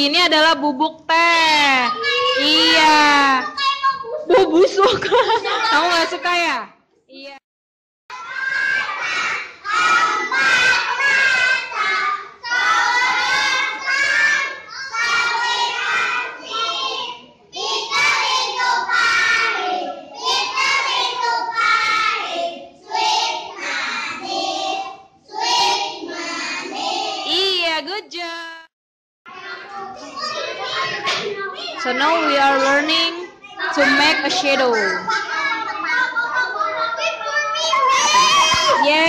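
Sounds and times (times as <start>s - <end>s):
children singing in unison: 8.1s - 27.2s.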